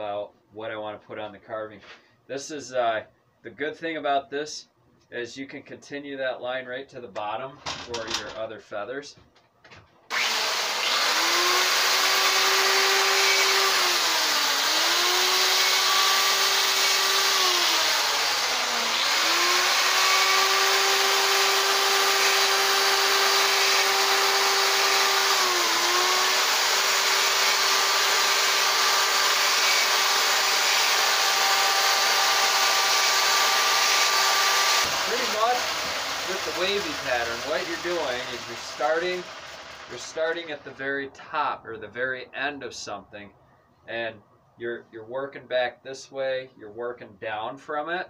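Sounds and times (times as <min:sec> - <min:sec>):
electric chainsaw cutting wood: 0:10.1 - 0:40.6.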